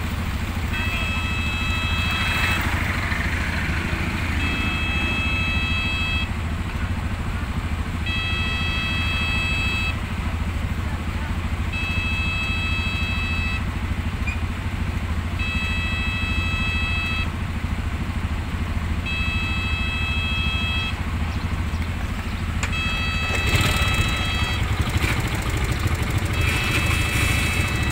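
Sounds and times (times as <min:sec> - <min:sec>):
motorbikes idling: 0:00.0 - 0:27.9
level-crossing warning alarm: 0:00.6 - 0:06.5, 0:07.9 - 0:10.1, 0:11.7 - 0:13.7, 0:15.3 - 0:17.4, 0:19.0 - 0:21.1, 0:22.6 - 0:27.9
freight train passing: 0:01.6 - 0:07.9.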